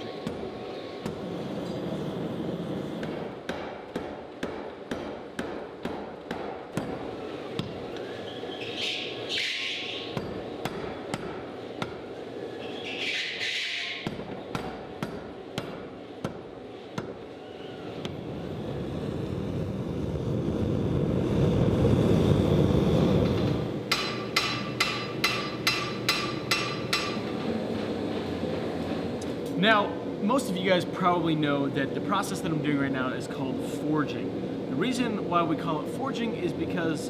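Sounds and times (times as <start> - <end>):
hammer striking hot steel: 2.8 - 8.1, 9.0 - 12.1, 13.1 - 17.2, 23.2 - 28.3.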